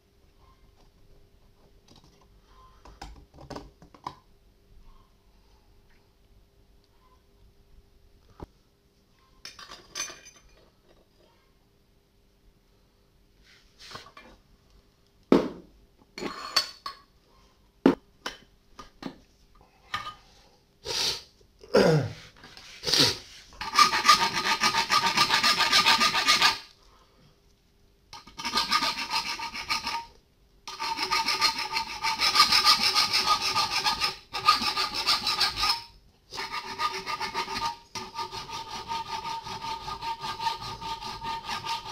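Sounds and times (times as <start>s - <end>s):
hand file rasping on metal: 23.6s - 26.7s, 28.2s - 30.1s, 30.7s - 41.9s.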